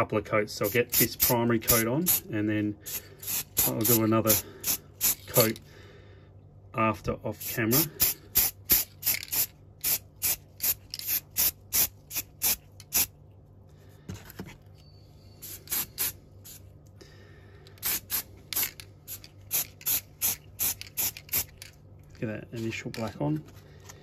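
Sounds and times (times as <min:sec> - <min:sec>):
aerosol spray hissing bursts: 0:02.9 - 0:05.4, 0:07.4 - 0:13.1, 0:15.4 - 0:16.6, 0:17.8 - 0:21.5.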